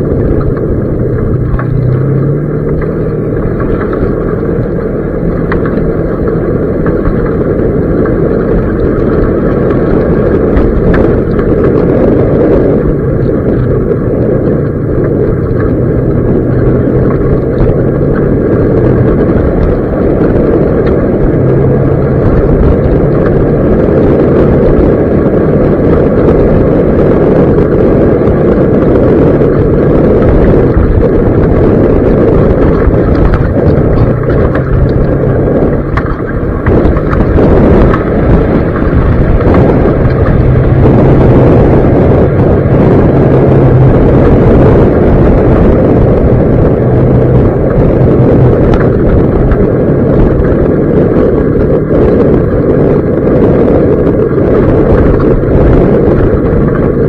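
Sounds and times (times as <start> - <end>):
off-road vehicle engine running: 0.0 - 57.0
tires on gravel road: 0.0 - 57.0.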